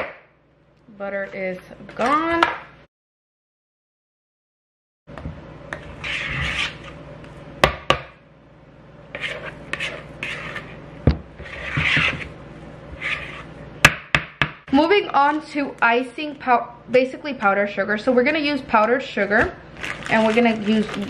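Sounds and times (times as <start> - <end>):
spatula scraping plastic bowl: 5.7 - 7.0, 9.1 - 10.8, 11.4 - 13.6.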